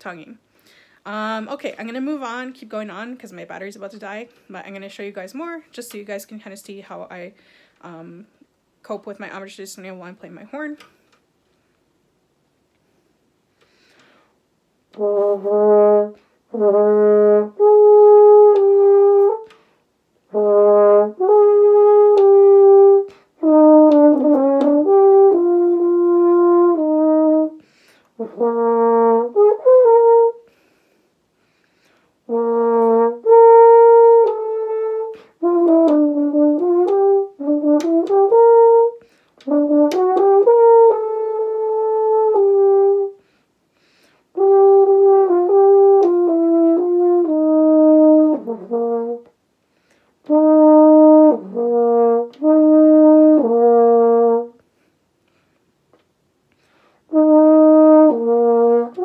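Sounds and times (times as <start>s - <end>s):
french horn playing: 14.9s - 19.6s, 20.2s - 30.6s, 32.2s - 43.2s, 44.3s - 49.3s, 50.2s - 54.6s, 57.0s - 59.0s.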